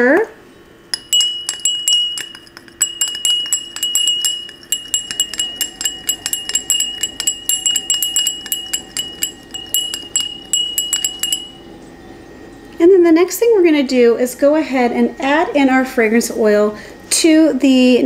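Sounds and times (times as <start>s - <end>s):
stirrer clinking against glass: 1.0s - 11.7s.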